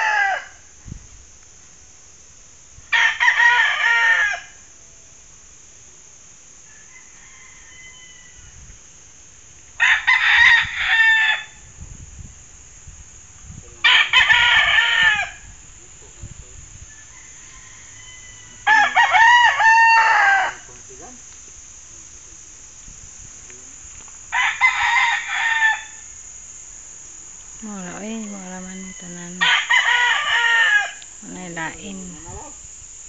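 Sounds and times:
rooster crowing: 0.0 - 0.7, 2.9 - 4.7, 6.6 - 8.7, 9.8 - 11.6, 13.8 - 15.5, 16.8 - 20.8, 24.3 - 26.1, 28.4 - 31.0.

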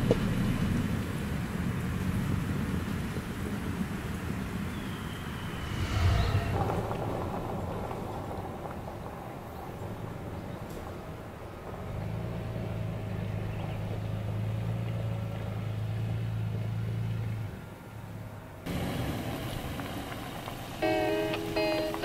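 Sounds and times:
engine humming at low speed: 0.0 - 22.0
acoustic guitar music: 20.8 - 22.0.

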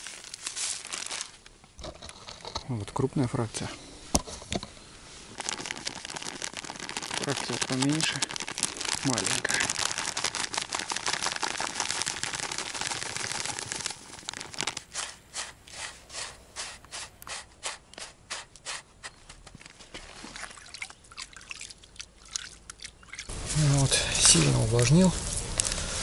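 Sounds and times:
groundbait pouring into plastic tub: 5.4 - 16.3
water drips and small splashes: 19.6 - 23.4.

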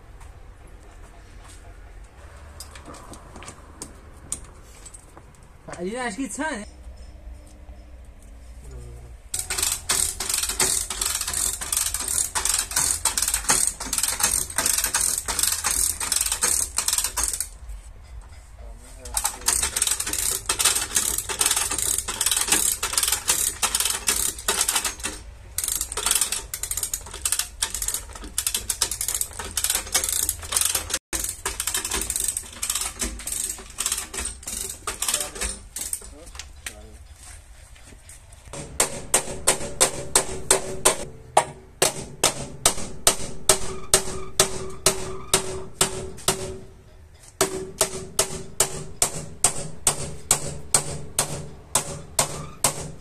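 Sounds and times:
ratchet hoist pawl clicking: 9.3 - 17.6, 19.1 - 36.5.

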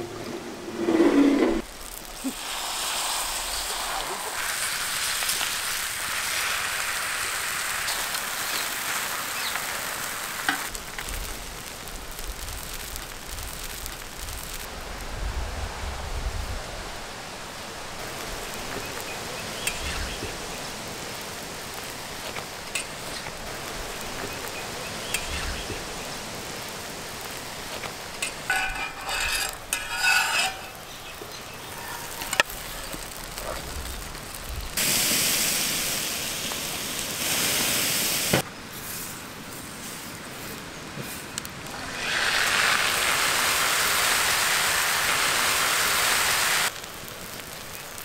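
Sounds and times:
batter sizzling on griddle: 1.6 - 15.1, 17.6 - 39.1, 39.8 - 48.0
spatula scrapes and clicks: 28.2 - 30.8.

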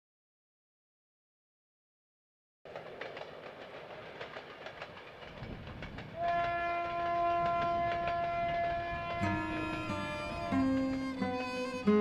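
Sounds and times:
train clickety-clack on rails: 2.7 - 12.0
long steady whistle: 6.2 - 12.0.

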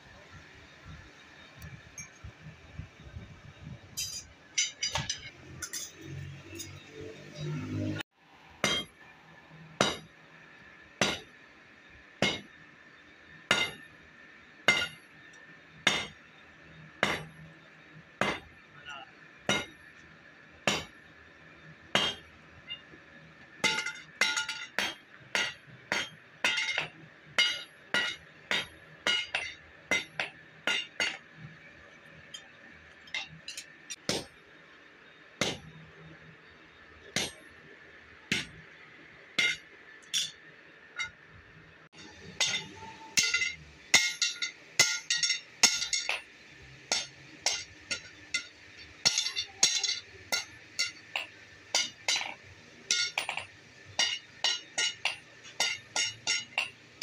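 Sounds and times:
hammer striking metal on anvil: 3.9 - 7.0, 8.6 - 9.0, 9.8 - 10.1, 11.0 - 11.3, 12.2 - 12.6, 13.5 - 13.9, 14.7 - 15.1, 15.8 - 16.2, 17.0 - 17.4, 18.2 - 18.6, 19.5 - 19.8, 20.6 - 21.0, 21.9 - 22.8, 23.6 - 31.5, 33.1 - 34.4, 35.4 - 35.7, 37.0 - 37.6, 38.3 - 38.6, 39.4 - 40.4, 42.0 - 46.3, 46.9 - 56.9.

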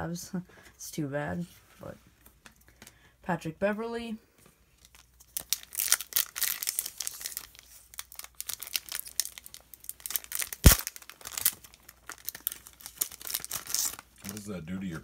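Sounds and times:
wrapper crinkling and tearing: 4.8 - 15.0.

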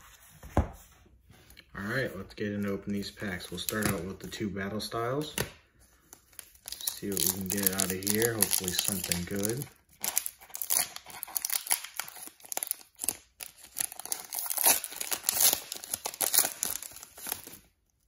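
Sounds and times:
foil wrapper tearing and crinkling: 6.3 - 17.7.

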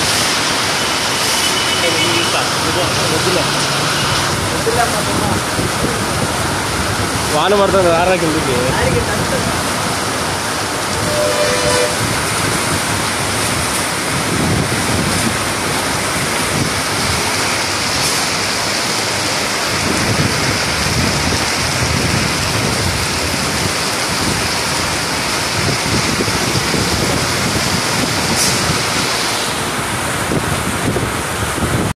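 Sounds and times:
torrential rain: 0.0 - 31.9
wind buffeting microphone: 11.9 - 17.4, 19.7 - 31.9.

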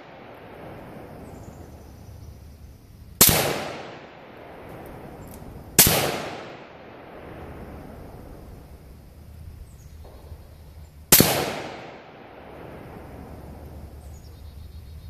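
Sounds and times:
rifle shot: 3.2 - 5.2, 5.8 - 8.0, 11.1 - 13.4.

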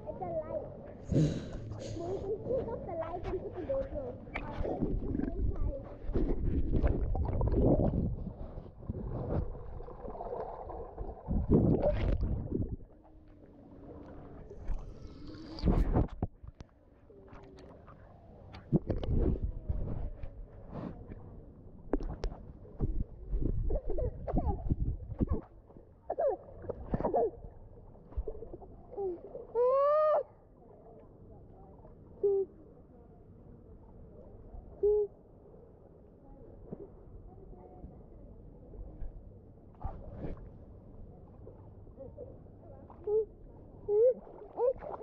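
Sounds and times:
pool water sloshing and splashing: 0.3 - 32.6, 38.5 - 45.0
children calling underwater: 28.9 - 30.5, 43.0 - 45.0.

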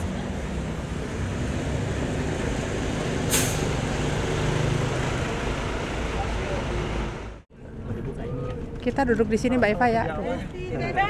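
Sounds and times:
hiss of released air: 3.3 - 3.7.

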